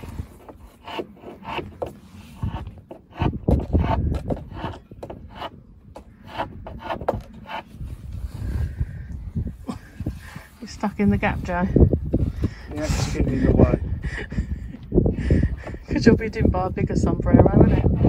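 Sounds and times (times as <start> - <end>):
scraper scraping wood: 0.0 - 8.4, 17.3 - 18.0.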